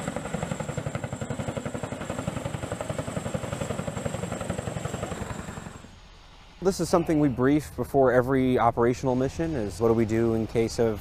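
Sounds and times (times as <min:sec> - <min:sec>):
helicopter rotors chopping: 0:00.0 - 0:06.0
steady high whine: 0:00.0 - 0:11.0.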